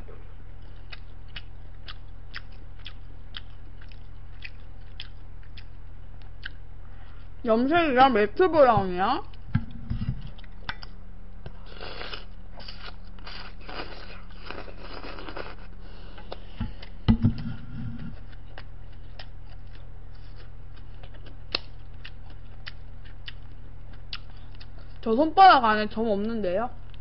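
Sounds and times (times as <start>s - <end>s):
steady low hum: 0.0s - 27.0s
chewing and mouth clicks: 0.6s - 6.6s, 10.2s - 11.0s, 18.0s - 25.1s.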